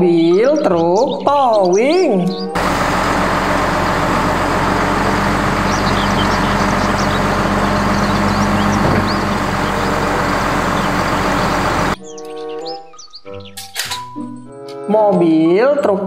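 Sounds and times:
hydraulic bed sliding: 2.6s - 12.0s
truck engine humming: 2.6s - 12.0s.

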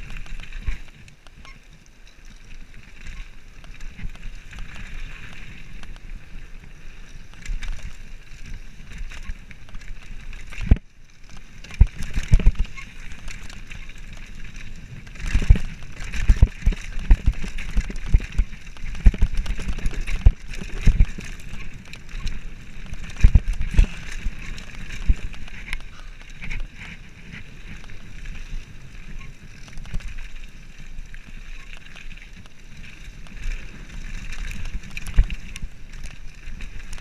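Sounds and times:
wind and tyres rushing: 0.0s - 37.0s
bike clattering over bumps: 14.9s - 28.0s.

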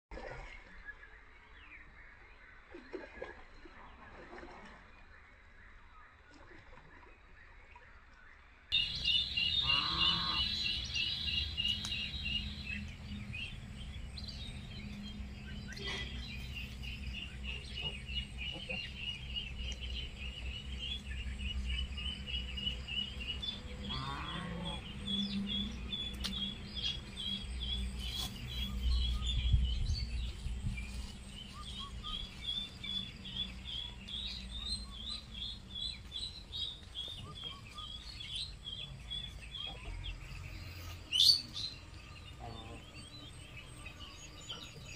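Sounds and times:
small birds chirping: 8.7s - 44.9s
low steady rumble: 8.8s - 36.9s.

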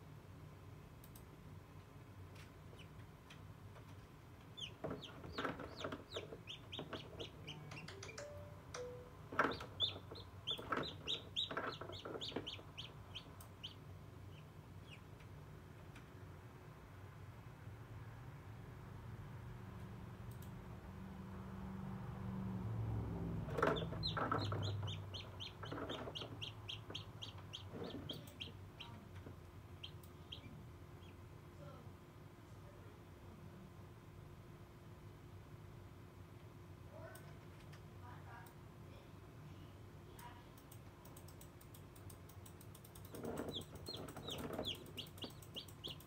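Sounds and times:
chick peeping: 4.5s - 8.3s, 9.3s - 15.1s, 23.5s - 29.2s, 29.8s - 31.2s, 42.9s - 46.0s.

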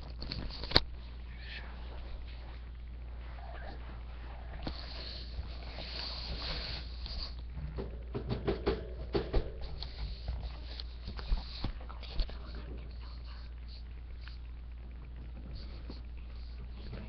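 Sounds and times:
steady low hum: 0.0s - 17.0s
sharp knocks and clicks: 7.7s - 9.9s.

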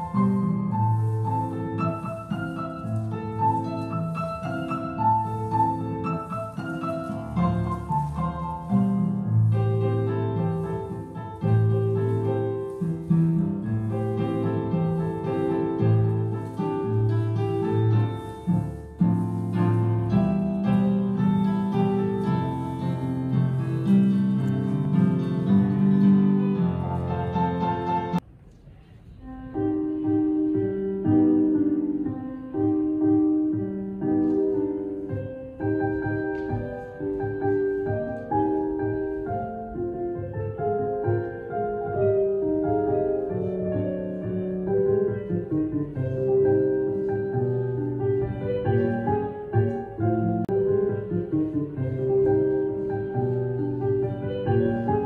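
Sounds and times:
piano music: 0.0s - 28.3s, 29.2s - 55.0s.

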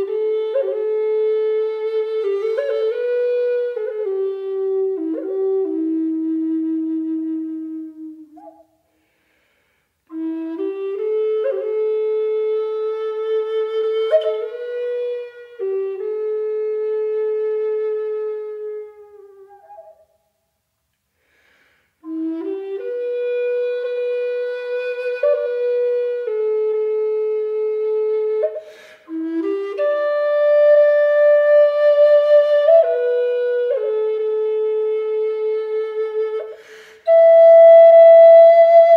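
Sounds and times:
solo flute playing held notes: 0.0s - 8.8s, 10.1s - 20.3s, 22.0s - 38.9s.

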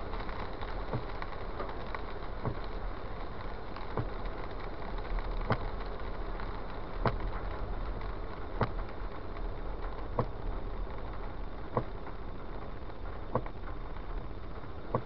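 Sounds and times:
car running noise: 0.0s - 15.0s
windshield wiper knock: 0.9s - 1.1s, 2.4s - 2.6s, 10.2s - 10.4s.

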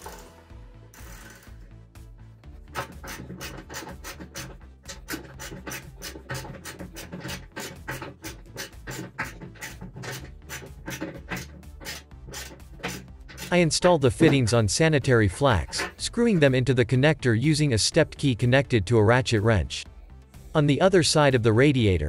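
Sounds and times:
background music with steady beat: 0.0s - 22.0s
ratchet wrench clicking: 0.9s - 1.6s.

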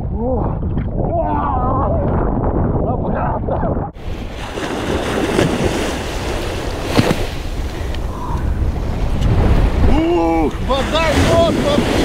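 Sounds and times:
wind rumbling on microphone: 0.0s - 12.0s
surf waves washing onto sand: 4.0s - 12.0s.

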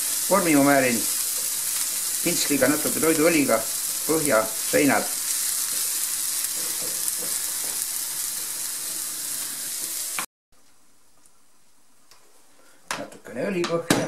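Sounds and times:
spatula stirring in pan: 0.0s - 10.2s
vegetables sizzling in oil: 0.0s - 10.3s.

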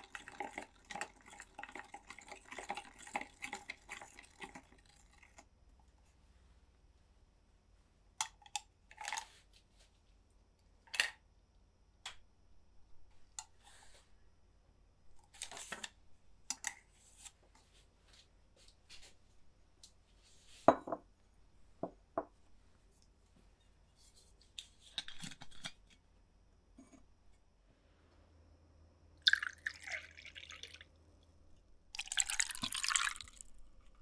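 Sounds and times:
ice clinking in glass: 29.2s - 30.5s, 32.0s - 33.5s.

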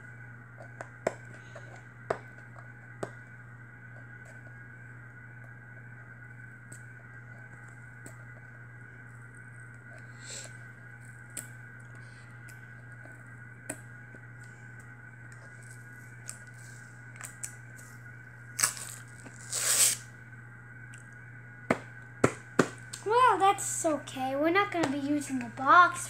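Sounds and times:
background hum: 0.0s - 26.0s
packaging tearing: 18.6s - 20.0s.

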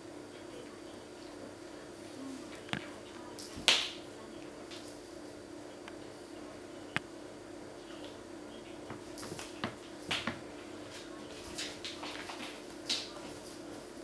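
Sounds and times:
steady low hum: 0.0s - 14.0s
kittens scuffling on floor: 8.9s - 14.0s.

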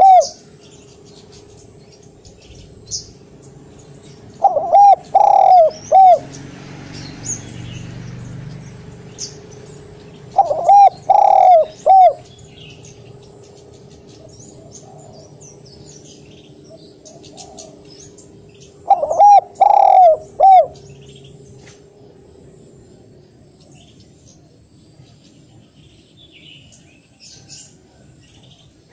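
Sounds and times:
dove cooing: 0.0s - 0.5s, 4.3s - 6.4s, 10.2s - 12.8s, 14.1s - 15.4s, 16.7s - 21.1s.

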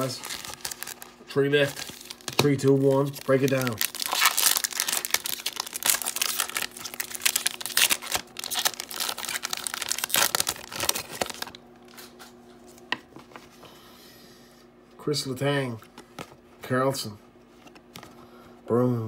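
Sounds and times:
foil wrapper tearing and crinkling: 0.0s - 11.6s.

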